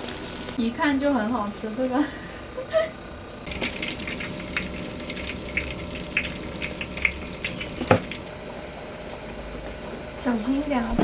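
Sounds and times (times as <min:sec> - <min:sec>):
oil sizzling with pops: 0:03.4 - 0:08.3.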